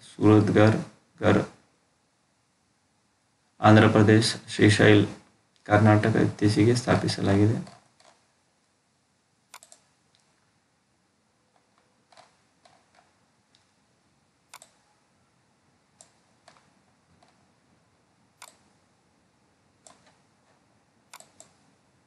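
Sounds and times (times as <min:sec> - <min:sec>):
computer mouse clicks: 0:07.6 - 0:08.2, 0:09.5 - 0:10.3, 0:11.5 - 0:13.7, 0:14.5 - 0:14.9, 0:16.0 - 0:17.4, 0:18.4 - 0:18.8, 0:19.8 - 0:21.7.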